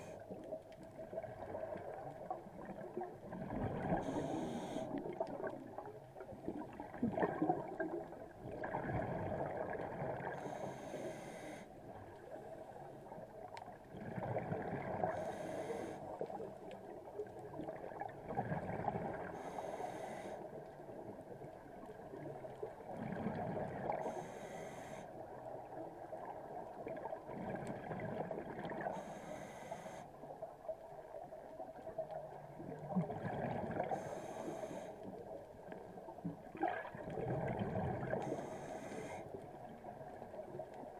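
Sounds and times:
exhaled bubbles gurgling: 0.0 - 10.8, 11.9 - 19.6, 20.8 - 24.3, 25.2 - 29.1, 30.4 - 40.9
regulator air hiss on inhale: 4.0 - 5.2, 10.3 - 11.8, 15.0 - 16.2, 19.3 - 20.6, 23.9 - 25.2, 28.8 - 30.3, 33.8 - 35.3, 38.2 - 39.5.

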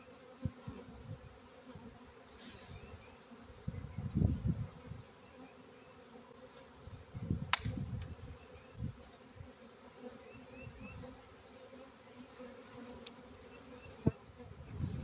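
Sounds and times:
bees buzzing: 0.0 - 15.0
sharp click: 7.5 - 8.1.

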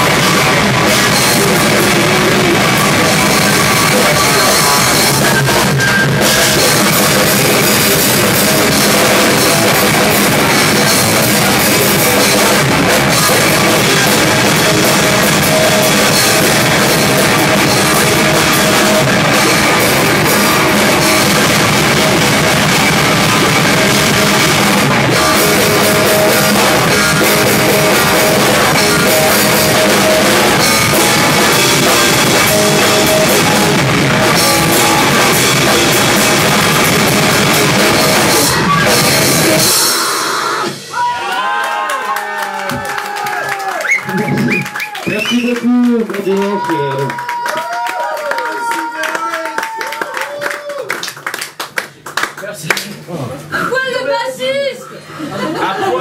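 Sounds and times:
drum kit with cymbals: 0.0 - 41.1
electric guitar: 0.0 - 41.3, 42.4 - 47.4.

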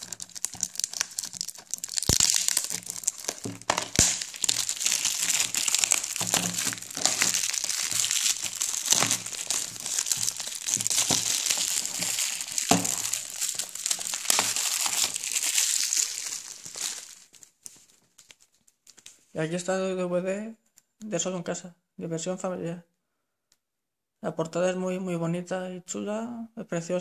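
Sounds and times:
plastic wrap crinkling: 0.0 - 19.3.

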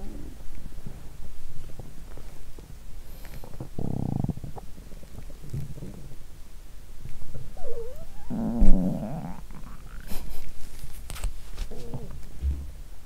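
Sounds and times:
stomach gurgling: 3.4 - 6.2, 7.3 - 10.1
loud low thump: 12.4 - 12.8.

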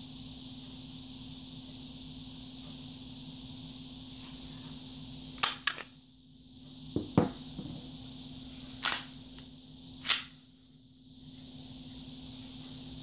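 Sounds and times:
part knocking on countertop: 7.0 - 7.8
pistol metallic clicks: 10.0 - 10.4.

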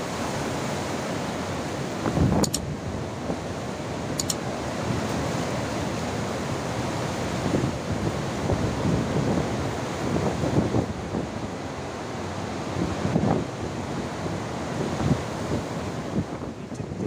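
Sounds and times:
floodwater rushing: 0.0 - 17.0
wind buffeting microphone: 1.4 - 17.0.

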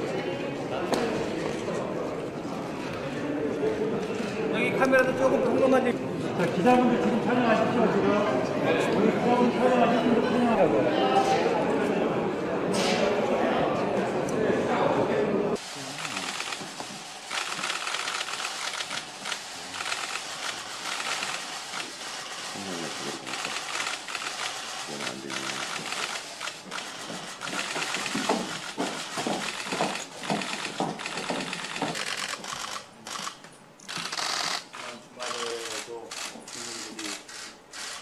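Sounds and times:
camera shutters clicking rapidly: 16.0 - 22.1, 23.0 - 38.0.

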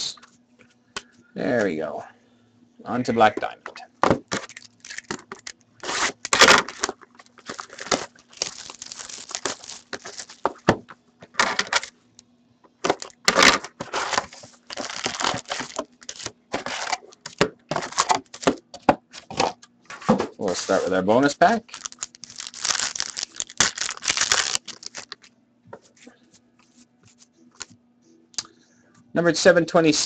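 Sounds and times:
foil packs crinkling: 4.3 - 11.9, 12.8 - 18.6, 21.5 - 25.3.

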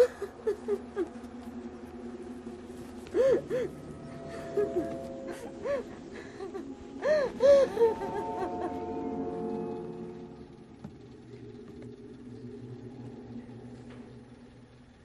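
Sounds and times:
rising and falling cries: 0.0 - 10.6
long held soundtrack notes: 0.0 - 15.0.

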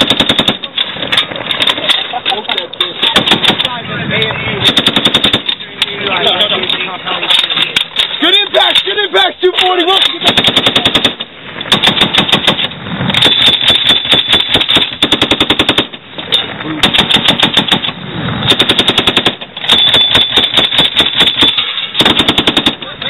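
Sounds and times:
machine guns firing: 0.0 - 0.8, 3.0 - 3.8, 4.6 - 5.6, 9.8 - 16.0, 16.8 - 23.0.

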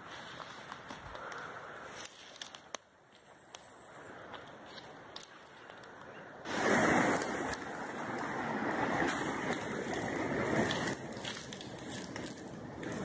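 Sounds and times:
dry leaves crackling: 0.0 - 13.0
wind rushing over microphone: 6.4 - 13.0.

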